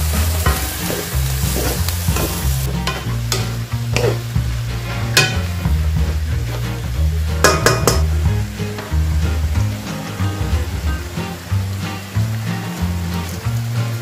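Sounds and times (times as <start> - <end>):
vegetables sizzling in a wok: 0.0 - 14.0
spatulas scraping a pan: 0.1 - 8.1.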